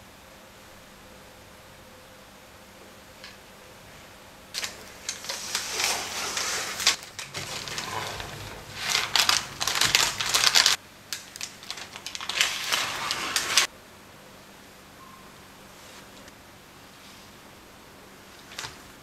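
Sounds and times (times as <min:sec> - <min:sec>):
knife cutting through chocolate shortbread: 0:11.7 - 0:13.7.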